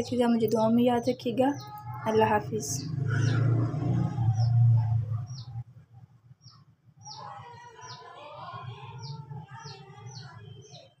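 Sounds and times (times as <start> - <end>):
small bird chirping: 0.0 - 5.6, 6.4 - 8.1
faint background noise: 0.0 - 11.0.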